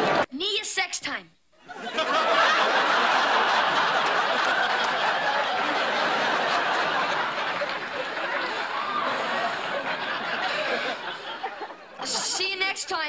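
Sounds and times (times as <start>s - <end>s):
studio audience laughing: 0.0s - 0.3s, 1.6s - 13.0s.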